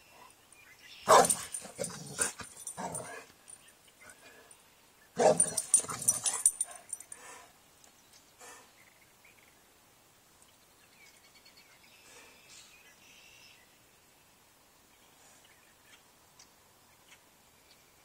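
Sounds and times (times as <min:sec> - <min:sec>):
dog barking: 0:01.1 - 0:03.2, 0:05.2 - 0:06.8.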